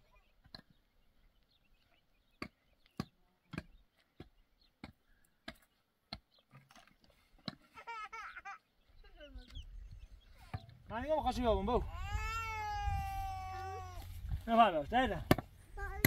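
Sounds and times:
wavering high-pitched cry: 0:11.8 - 0:14.1.

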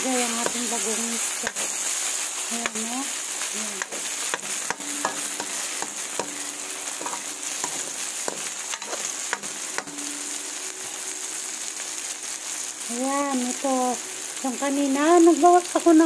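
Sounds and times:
spatula scraping pan: 0:00.0 - 0:10.4
vegetables sizzling in oil: 0:00.0 - 0:16.0.

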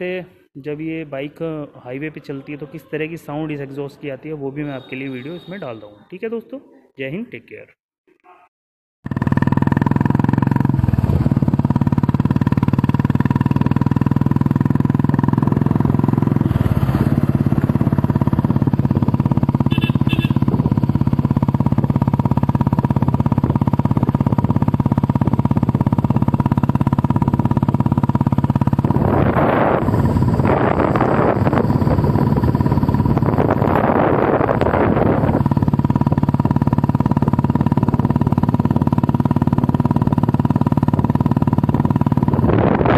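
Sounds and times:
motorcycle engine running: 0:09.0 - 0:42.9.

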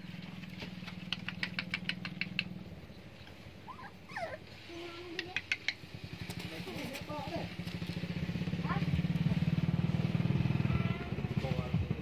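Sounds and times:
puppy whimper: 0:03.6 - 0:04.8.

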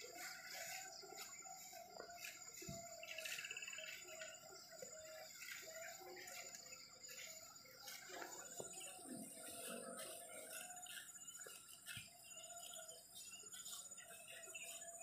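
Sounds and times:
faint birds chirping: 0:00.0 - 0:15.0.

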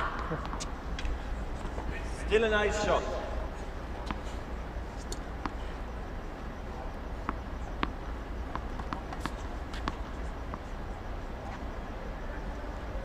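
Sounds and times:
tennis balls bouncing: 0:00.0 - 0:01.9, 0:03.5 - 0:12.2
steady low hum: 0:00.0 - 0:13.0.

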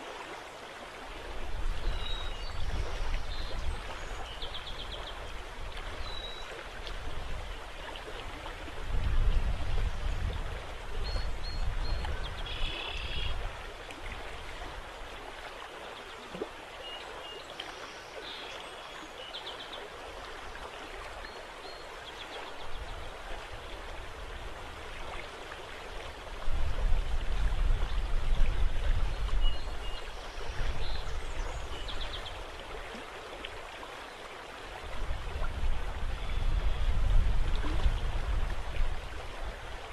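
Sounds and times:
river water lapping: 0:00.0 - 0:39.9
wind rumbling on microphone: 0:01.0 - 0:15.4, 0:22.5 - 0:33.0, 0:34.6 - 0:39.9.

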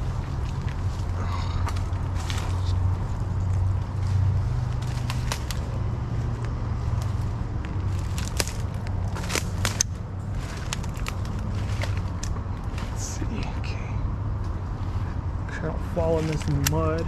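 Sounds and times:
crackles and snaps of brush: 0:00.0 - 0:13.5, 0:16.0 - 0:17.0
steady low rumble: 0:00.0 - 0:17.0.

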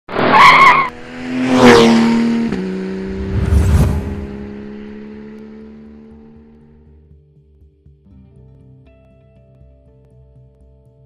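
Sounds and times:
tire screech: 0:00.1 - 0:02.3, 0:03.0 - 0:04.6
low rumble: 0:03.0 - 0:04.8
rising rush: 0:03.0 - 0:05.0.

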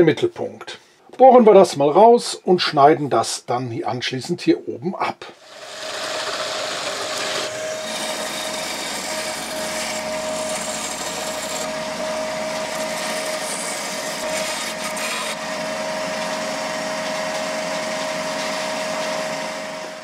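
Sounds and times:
band saw cutting wood: 0:05.4 - 0:20.0
drill press cutting wood: 0:05.4 - 0:20.0
motor hum: 0:05.4 - 0:20.0.

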